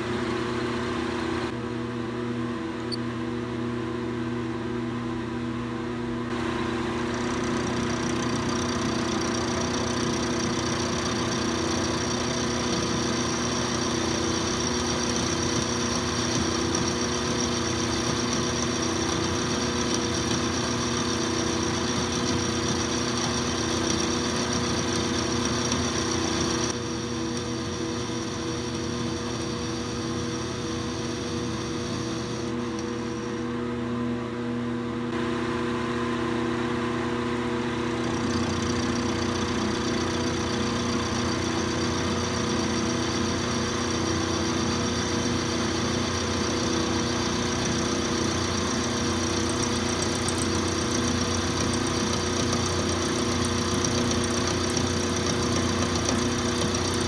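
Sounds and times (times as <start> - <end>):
milling machine whine: 6.3 - 34.0, 35.2 - 57.0
end mill cutting metal: 6.4 - 33.5.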